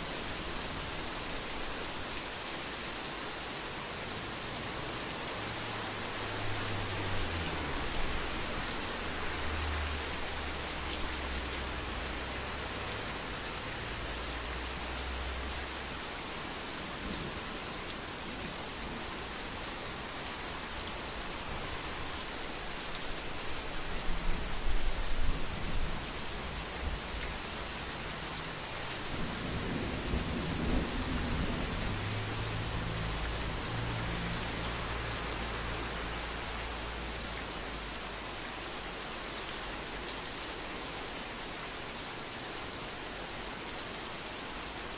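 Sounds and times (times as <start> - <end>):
heavy rain on a roof: 0.0 - 44.9
low rolling thunder: 29.1 - 33.0.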